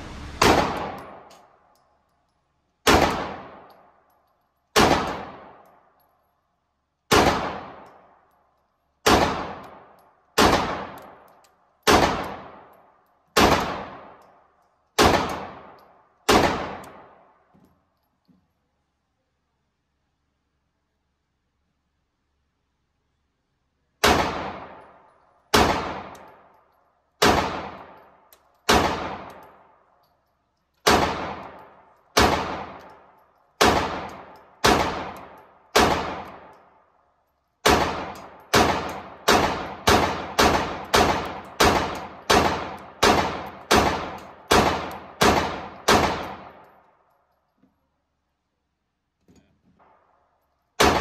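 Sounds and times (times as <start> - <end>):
pistol shots echoing indoors: 0.1 - 2.0, 2.8 - 6.1, 6.9 - 17.5, 24.0 - 47.2, 49.8 - 51.0.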